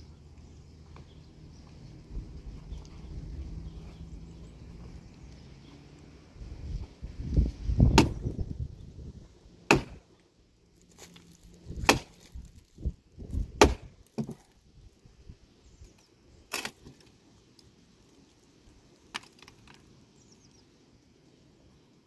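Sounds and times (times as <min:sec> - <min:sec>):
axe chopping wood: 0:07.8 - 0:08.3, 0:09.6 - 0:10.1, 0:11.7 - 0:12.3, 0:13.4 - 0:14.5.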